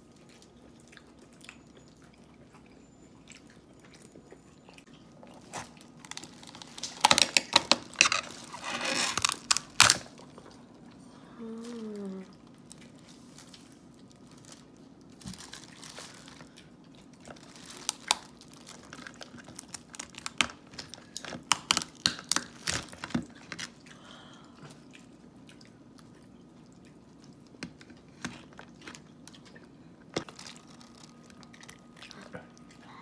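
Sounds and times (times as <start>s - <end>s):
shells cracking and snapping: 6.0s - 10.3s, 17.6s - 23.8s.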